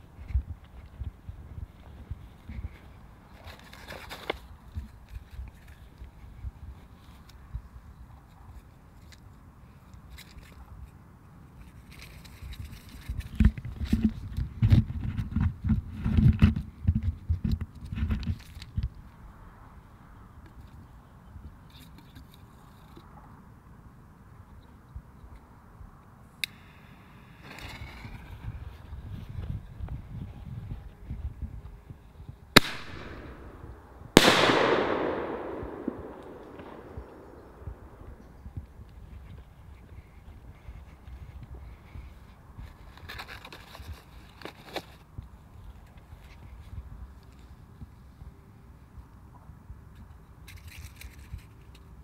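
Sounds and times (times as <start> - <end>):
firework shell bursting bang: 34.2 - 38.1.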